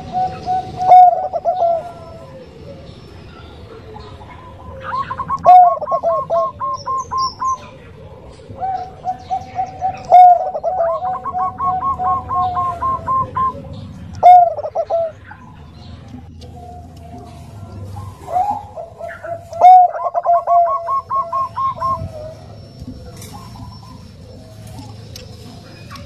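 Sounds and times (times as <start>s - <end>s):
dove cooing: 0.0s - 26.0s.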